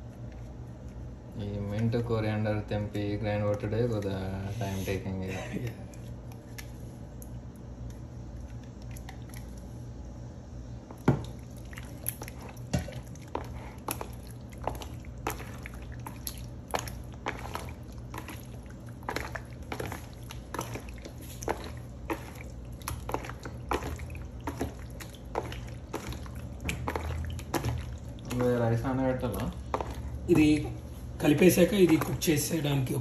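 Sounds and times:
hand squelching raw chicken: 0:11.3 - 0:33.0.

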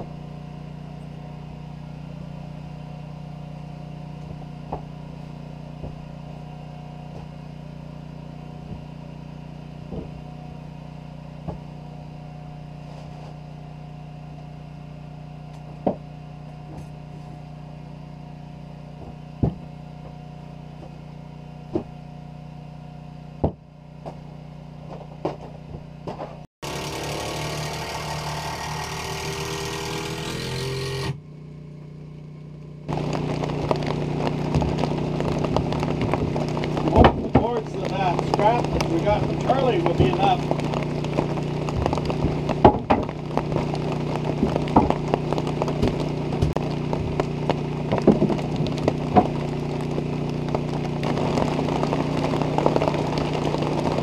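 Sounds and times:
machine drone: 0:26.6 - 0:54.0.

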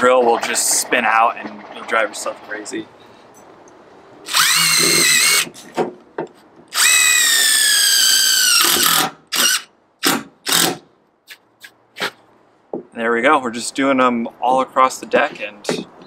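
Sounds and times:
impact driver motor whine: 0:04.3 - 0:05.5
screws driven through wood: 0:04.3 - 0:05.6, 0:06.7 - 0:11.4.

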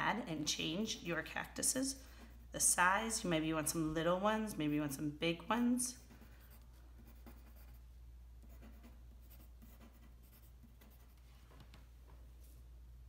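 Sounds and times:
pencil scratching on paper: 0:06.0 - 0:11.3.

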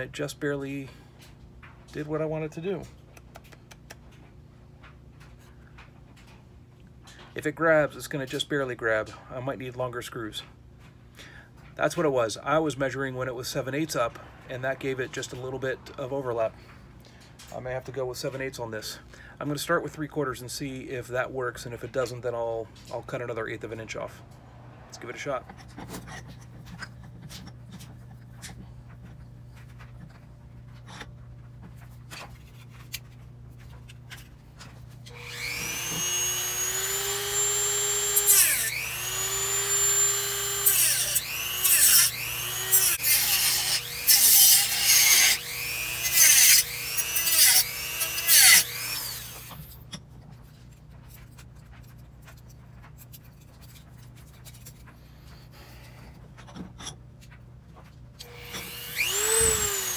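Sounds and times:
rotary tool cutting plastic: 0:35.1 - 0:49.8, 0:58.2 - 0:59.9.

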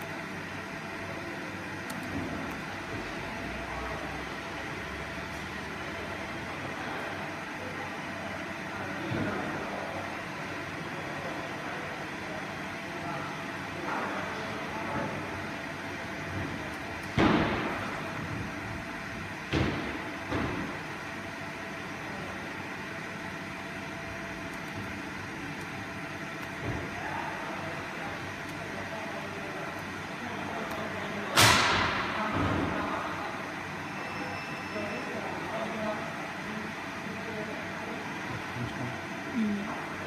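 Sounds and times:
workshop background hum: 0:00.0 - 0:40.0.

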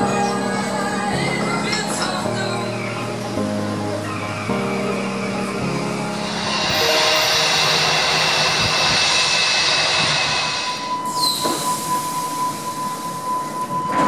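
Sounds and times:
train doors closing: 0:05.1 - 0:14.0
steady rushing noise: 0:05.5 - 0:12.4
steady high tone: 0:05.5 - 0:14.0.

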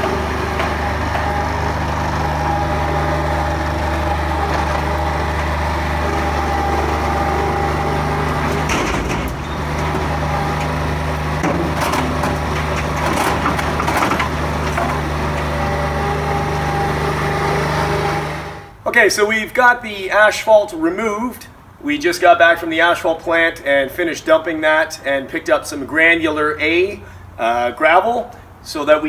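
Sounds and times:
asphalt clattering into trailer: 0:00.0 - 0:18.1
loader engine running: 0:00.0 - 0:18.8.

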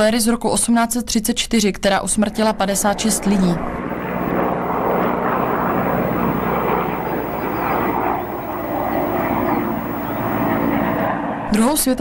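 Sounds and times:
helicopter rotor and engine: 0:03.8 - 0:11.5.

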